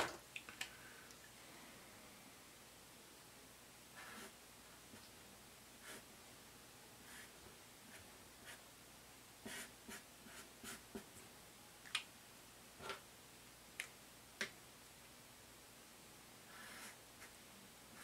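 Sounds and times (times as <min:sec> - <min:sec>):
marker scratching on paper: 0:04.0 - 0:04.4, 0:05.8 - 0:06.0, 0:07.9 - 0:08.6, 0:09.4 - 0:11.1, 0:16.5 - 0:17.4.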